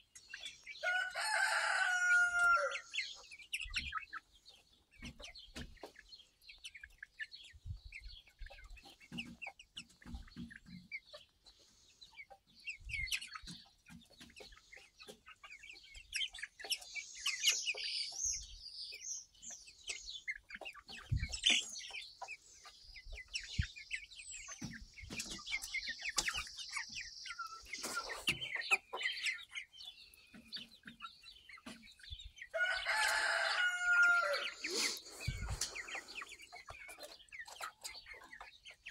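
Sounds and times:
chickens clucking and peeping: 0.0s - 38.9s
loud long chicken call: 0.8s - 3.0s, 32.5s - 36.2s.

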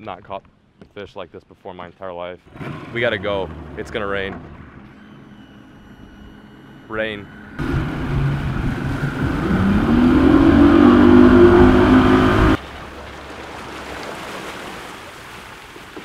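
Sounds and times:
outboard motor accelerating: 2.5s - 14.0s
wind and water rushing: 7.6s - 16.0s.

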